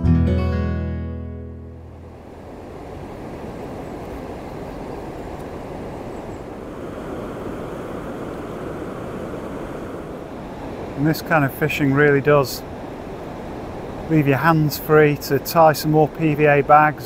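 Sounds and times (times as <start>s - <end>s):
acoustic guitar tune: 0.0s - 2.1s
water rushing over weir: 2.2s - 17.0s.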